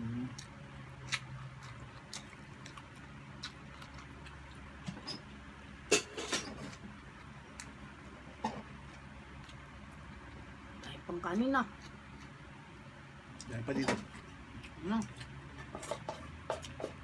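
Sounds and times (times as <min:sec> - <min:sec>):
low steady hum: 0:00.0 - 0:17.0
chewing mouth smacks: 0:00.3 - 0:04.7.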